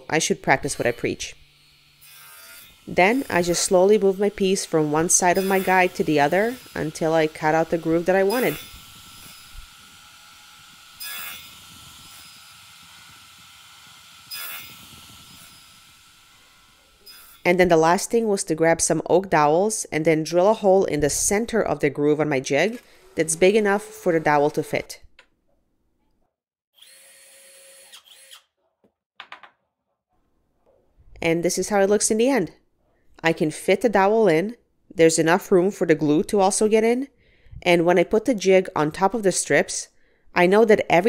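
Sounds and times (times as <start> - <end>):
saw blade cutting wood: 0.0 - 17.7, 22.5 - 25.0, 26.8 - 28.6
saw whining: 0.0 - 18.0, 22.4 - 25.0, 26.8 - 28.6
cordless drill boring into wood: 0.6 - 17.5, 22.6 - 24.7, 26.8 - 28.5.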